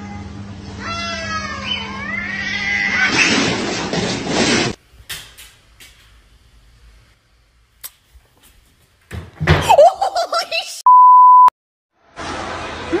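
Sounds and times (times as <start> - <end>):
cats yowling: 0.0 - 3.4
cat screeching: 0.0 - 3.5.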